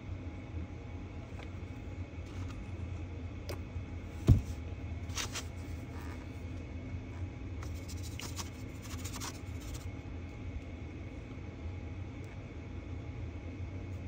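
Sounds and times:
low background hum: 0.0 - 14.0
thump: 4.2 - 4.5.

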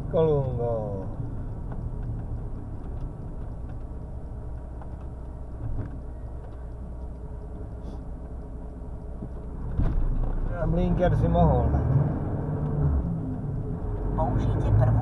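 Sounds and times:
truck engine and road rumble: 0.0 - 15.0.

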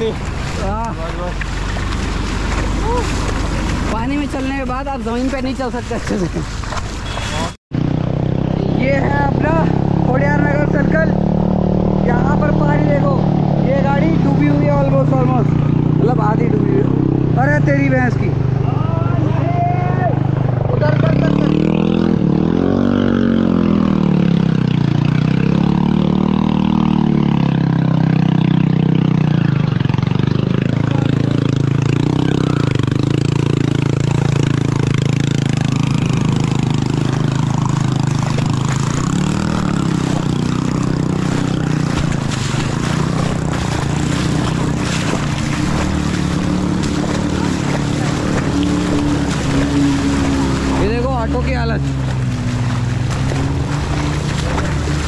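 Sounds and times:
motorcycle engine revving: 0.0 - 55.0
steady rushing noise: 32.5 - 55.0.

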